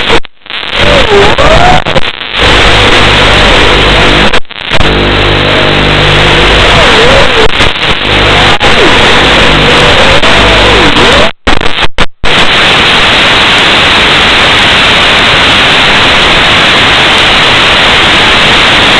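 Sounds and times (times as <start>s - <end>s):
loud static hiss: 0.0s - 18.9s.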